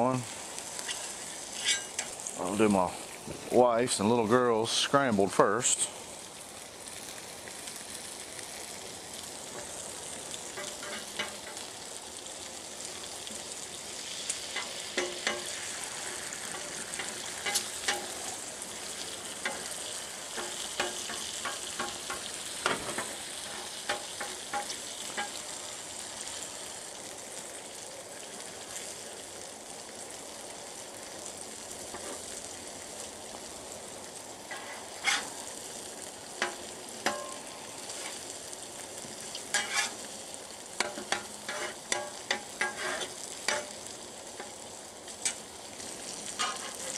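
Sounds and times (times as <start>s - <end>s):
eggs and bacon sizzling: 0.0s - 46.9s
metal spatula scraping griddle: 0.8s - 2.2s, 10.6s - 11.6s, 14.5s - 18.4s, 20.3s - 25.4s, 31.9s - 32.2s, 34.5s - 35.4s, 36.4s - 38.2s, 39.5s - 40.1s, 40.8s - 43.8s, 46.3s - 46.9s.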